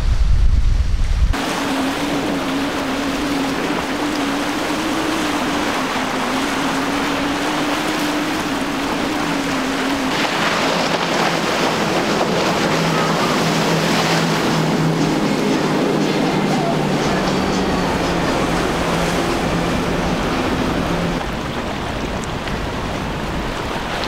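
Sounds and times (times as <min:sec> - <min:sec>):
boat outboard motor drone: 0:01.3 - 0:24.0
spray and waves off hull: 0:01.3 - 0:24.0.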